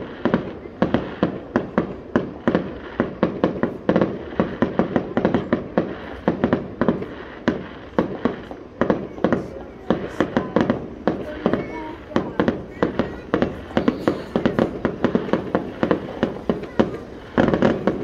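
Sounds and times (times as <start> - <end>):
continuous rumble: 0.0 - 18.0
fireworks bangs: 0.0 - 18.0.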